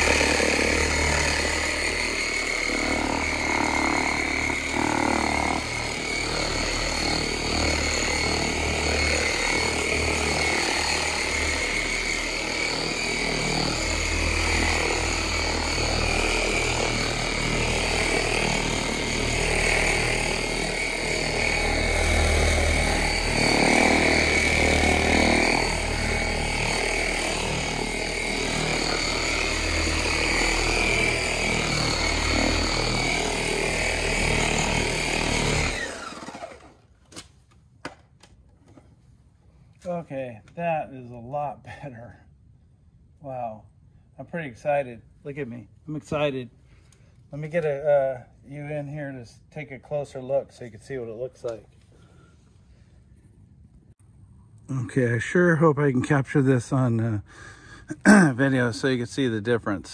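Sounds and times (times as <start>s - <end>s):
electric buffer motor whine: 0.0s - 36.8s.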